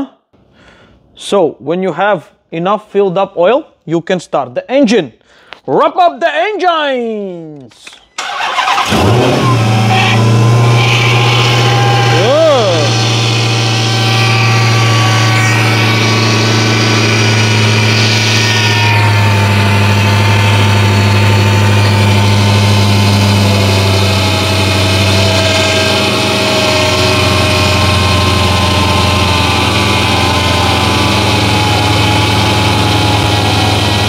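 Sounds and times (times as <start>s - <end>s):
car engine idling: 8.2s - 34.0s.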